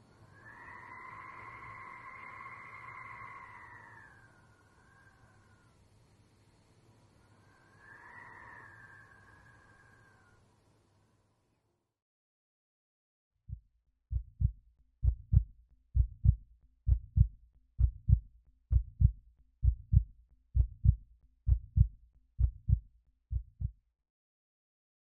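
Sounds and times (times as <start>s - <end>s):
heartbeat thumps: 13.5s - 23.8s.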